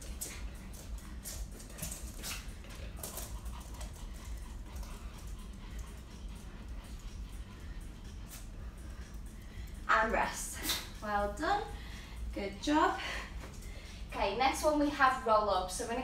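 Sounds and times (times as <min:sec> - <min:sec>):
dog breathing and scuffling: 0:00.0 - 0:11.4
steady low rumble: 0:00.0 - 0:16.0.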